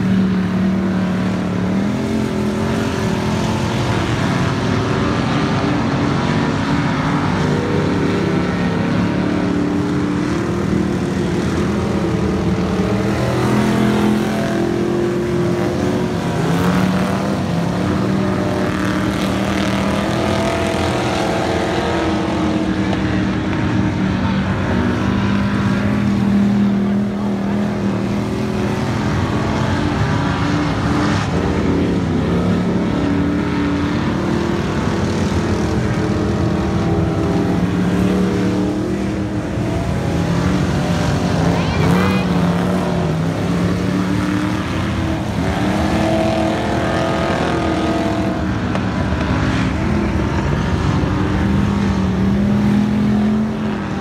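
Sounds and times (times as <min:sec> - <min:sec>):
race car engines racing: 0:00.0 - 0:54.0.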